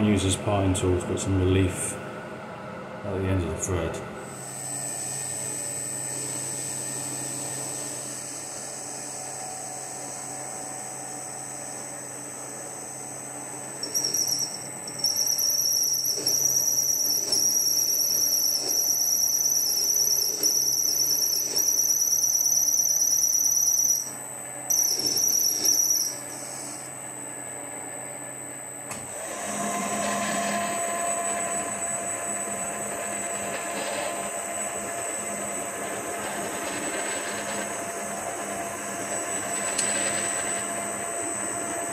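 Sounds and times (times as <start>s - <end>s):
high-pitched warbling tool squeal: 13.8s - 26.9s.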